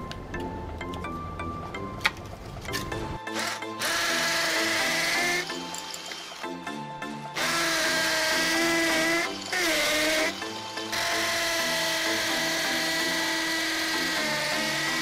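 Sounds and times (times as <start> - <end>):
background music with beat: 0.0 - 15.0
power drill whining: 3.3 - 15.0.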